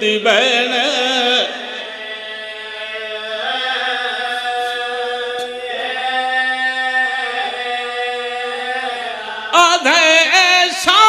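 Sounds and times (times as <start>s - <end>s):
men chanting held drone: 1.4s - 10.4s.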